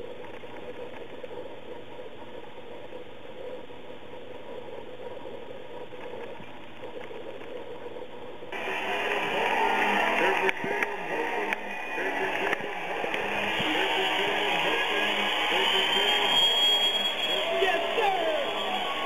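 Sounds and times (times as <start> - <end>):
faint hum: 0.0 - 19.0.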